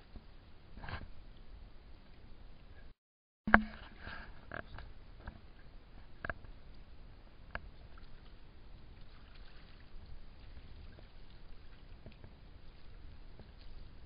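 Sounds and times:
water lapping over stones: 7.6 - 14.0.

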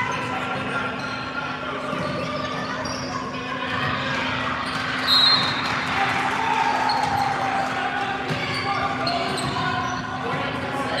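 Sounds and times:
sneaker squeaks: 0.0 - 5.9, 6.8 - 7.4, 8.3 - 10.2.

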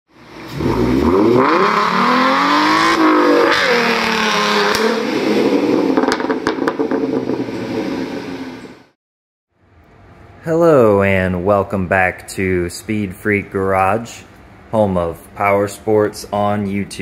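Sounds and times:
car engine revving hard: 0.2 - 8.7.

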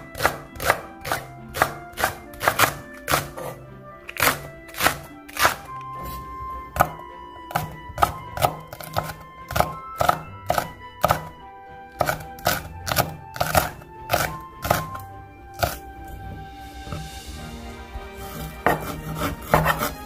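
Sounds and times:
soft background music: 0.0 - 20.0
knife chopping on cutting board: 0.2 - 3.6, 4.2 - 5.7, 6.8 - 11.3, 12.0 - 15.0, 18.3 - 20.0.

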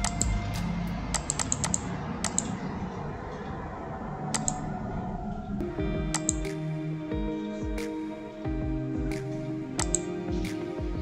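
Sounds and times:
computer mouse clicking: 0.0 - 0.4, 1.1 - 2.6, 4.3 - 4.6, 6.1 - 6.6, 9.8 - 10.1
background music: 0.0 - 11.0.

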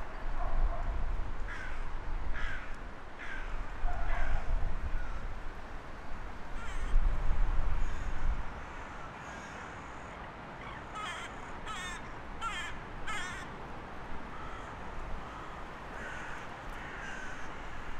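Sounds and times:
crow cawing: 1.5 - 5.3, 6.6 - 7.0, 7.8 - 13.6, 14.3 - 17.9.

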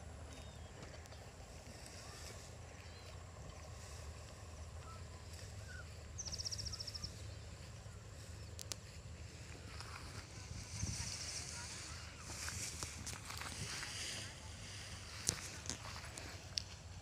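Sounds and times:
low outdoor rumble: 0.0 - 17.0
faint bird chirps: 0.2 - 8.7
high rapid bird trill: 4.8 - 8.5.

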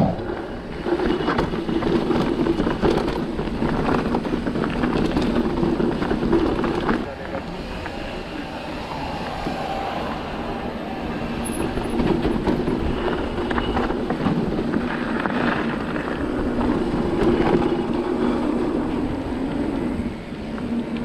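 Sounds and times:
bike rattles and clicks: 0.0 - 8.0, 11.4 - 21.0
bike tyre hum on dirt: 0.0 - 21.0.

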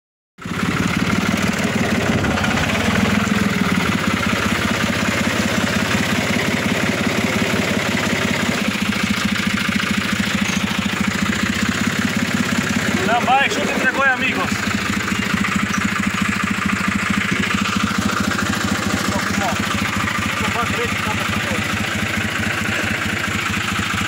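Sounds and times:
tractor engine running: 0.4 - 24.0.

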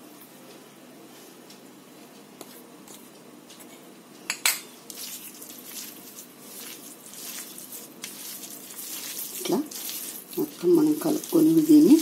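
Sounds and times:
flour pouring rustle: 4.9 - 12.0.

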